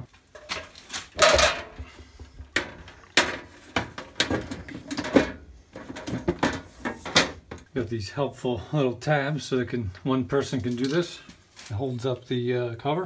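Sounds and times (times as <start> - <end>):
metal panel cover clanking: 0.4 - 7.6.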